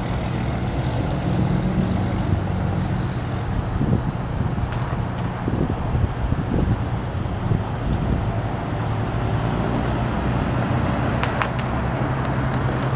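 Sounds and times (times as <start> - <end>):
pickup truck driving past: 7.0 - 12.9.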